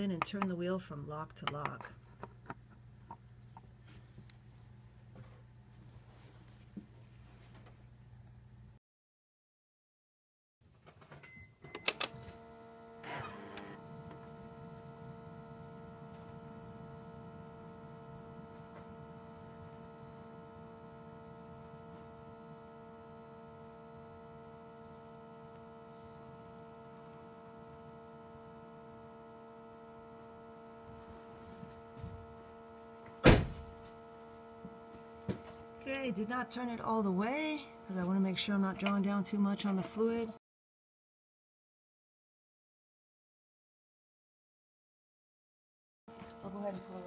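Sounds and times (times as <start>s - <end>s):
steady machine hum: 12.2s - 40.4s, 46.1s - 47.0s.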